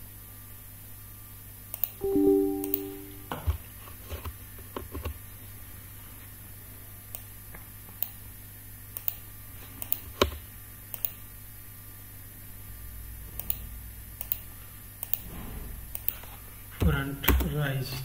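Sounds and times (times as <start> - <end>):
keyboard and mouse clicking: 14.2 - 14.4.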